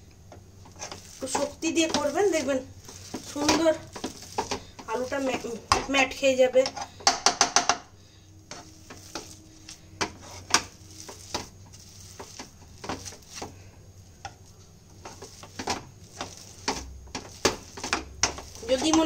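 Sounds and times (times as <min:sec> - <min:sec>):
potato masher knocking on pan: 0:00.7 - 0:06.0, 0:06.6 - 0:07.9, 0:10.0 - 0:13.5, 0:15.0 - 0:19.0.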